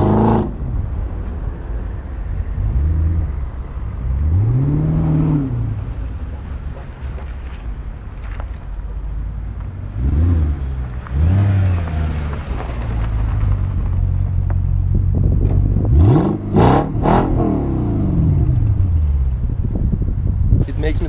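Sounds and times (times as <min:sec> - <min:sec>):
car engine revving: 0:00.0 - 0:01.1, 0:02.3 - 0:06.7, 0:09.7 - 0:20.0.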